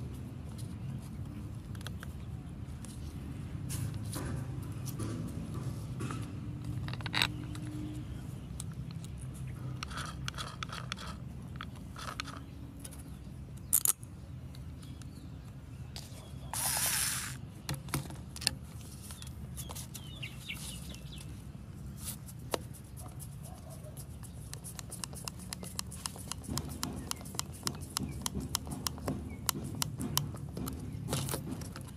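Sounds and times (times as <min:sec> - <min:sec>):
metal parts clicking and knocking: 0:08.6 - 0:13.0.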